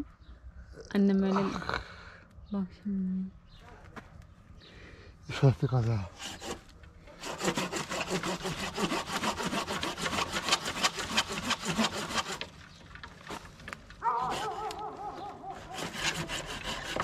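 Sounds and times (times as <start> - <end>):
hand saw cutting tree stem: 6.1 - 12.6, 13.2 - 17.0
wavering animal call: 14.0 - 16.4.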